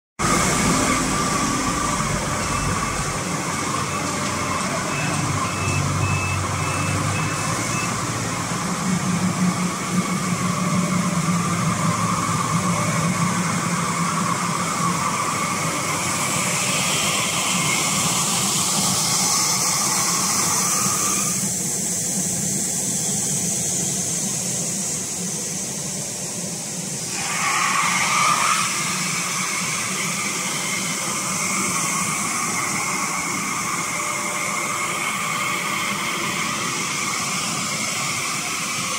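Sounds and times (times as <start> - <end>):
glass washing machine whirring: 0.2 - 21.4.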